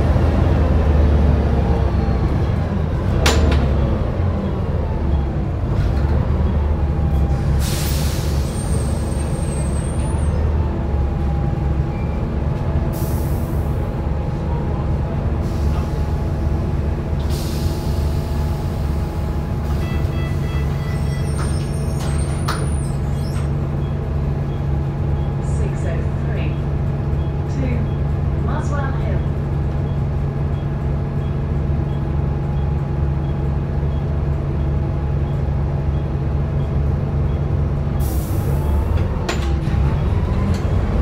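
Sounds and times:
bus diesel engine running: 0:00.0 - 0:41.0
air brake hisses: 0:07.6 - 0:09.2, 0:17.2 - 0:18.4.

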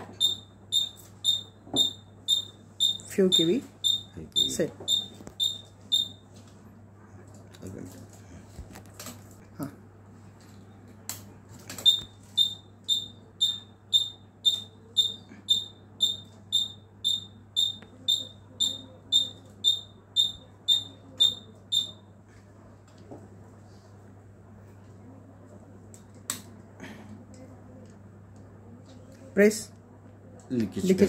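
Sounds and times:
buzzer beeping: 0:00.1 - 0:06.2, 0:11.8 - 0:22.0.

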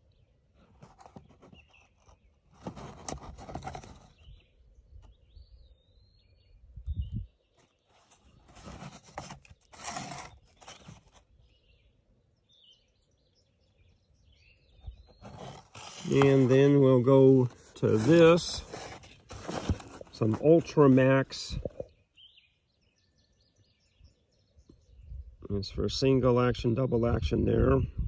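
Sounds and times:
bird chirping: 0:00.0 - 0:02.7, 0:03.5 - 0:25.6
cardboard box rustling and scraping: 0:00.6 - 0:04.4, 0:07.6 - 0:11.3, 0:14.9 - 0:21.1.

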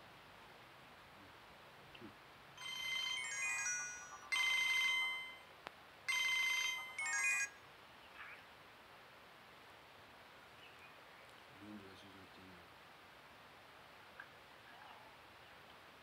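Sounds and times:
electronic phone ringtone: 0:02.6 - 0:05.5, 0:06.1 - 0:07.6.

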